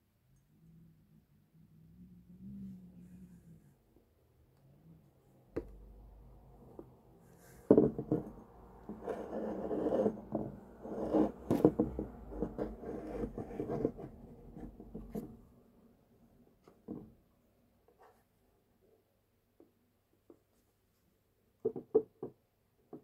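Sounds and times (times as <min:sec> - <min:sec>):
scraping and rubbing: 0:07.4 - 0:15.4.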